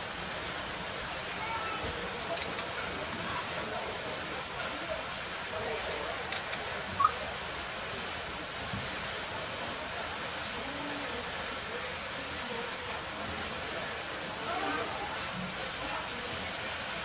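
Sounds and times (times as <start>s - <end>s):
water running into a pool: 0.0s - 17.0s
sharp clicks: 6.3s - 6.7s.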